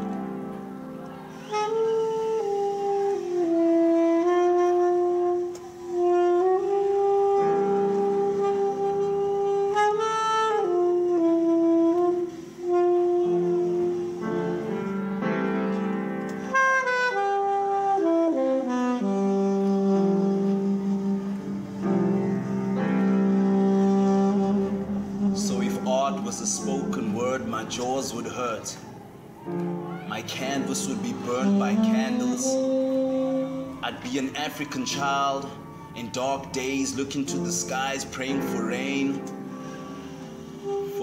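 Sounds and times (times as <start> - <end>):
slow solo melody: 0.0 - 41.0
low sustained accompaniment: 18.5 - 41.0.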